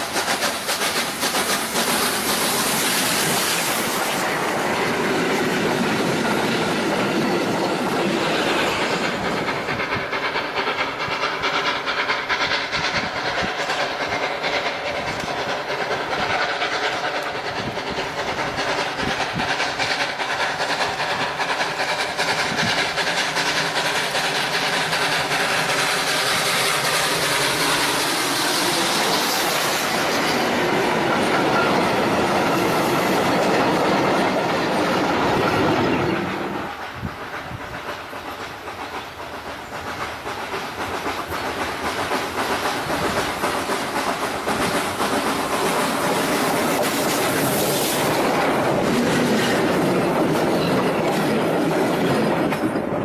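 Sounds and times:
train rumbling along track: 0.0 - 53.0.

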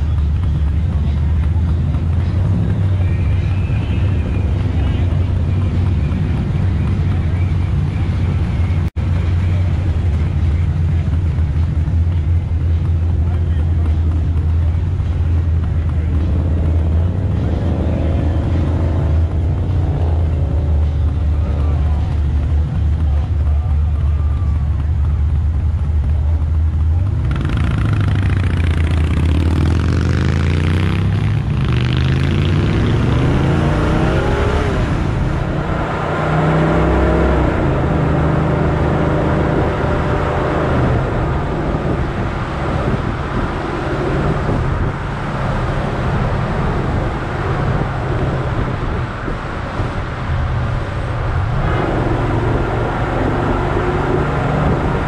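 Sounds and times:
car engine accelerating: 0.0 - 55.0.

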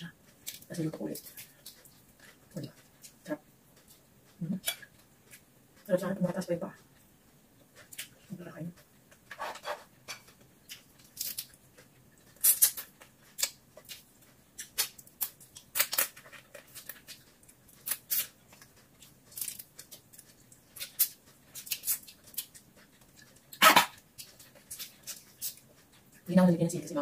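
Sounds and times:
shell cracking and peeling: 10.1 - 11.6, 14.6 - 18.7, 19.3 - 22.6
mouth smacking and chewing: 10.2 - 26.3.

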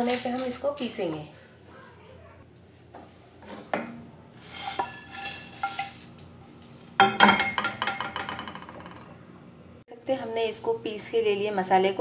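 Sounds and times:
spices rattling in a pan: 4.4 - 6.2
pan clattering against plate: 7.0 - 9.1.

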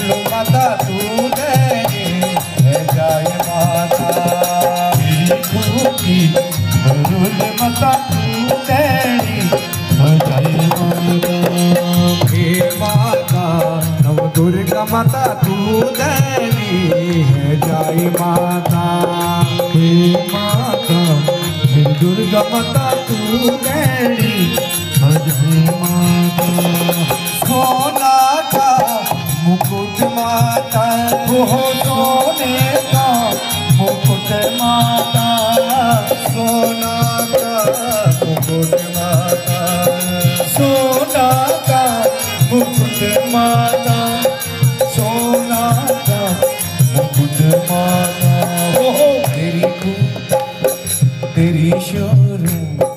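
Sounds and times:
barrel drum rhythm: 0.0 - 52.9
harmonium melody over drone: 0.0 - 52.9.

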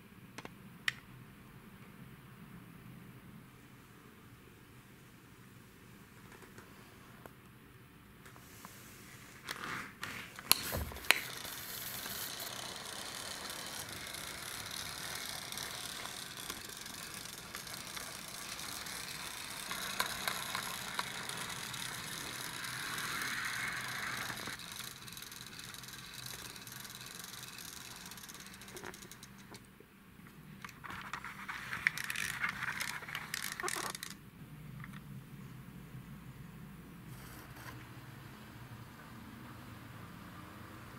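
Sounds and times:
toy car rolling on wooden floor: 9.4 - 29.7, 30.6 - 34.2.

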